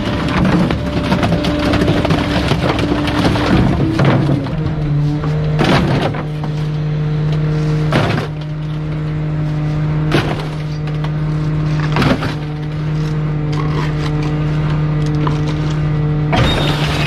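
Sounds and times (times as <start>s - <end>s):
trash bags crashing into hopper: 0.0s - 6.6s, 16.3s - 17.0s
garbage truck engine humming: 0.0s - 17.0s.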